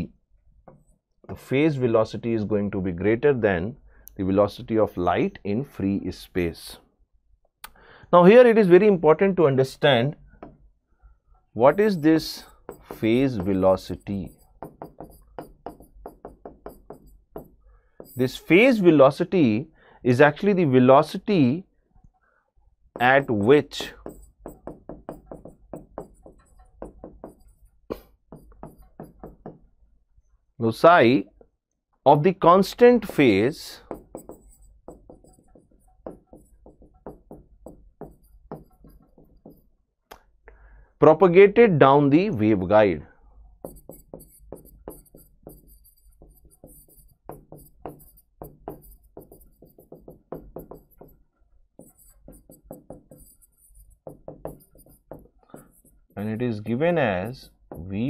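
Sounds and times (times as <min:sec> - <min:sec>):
stylus tapping on screen: 0:11.7 - 0:18.3, 0:23.0 - 0:29.7, 0:33.0 - 0:40.3, 0:43.6 - 0:51.2, 0:51.8 - 0:58.0
pen writing on board: 0:11.7 - 0:18.7, 0:23.0 - 0:29.6, 0:33.0 - 0:39.7, 0:43.6 - 0:51.2, 0:51.8 - 0:57.8.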